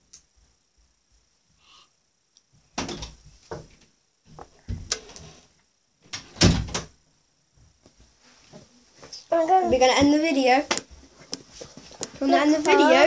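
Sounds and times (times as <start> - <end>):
rustling: 10.9 - 12.9.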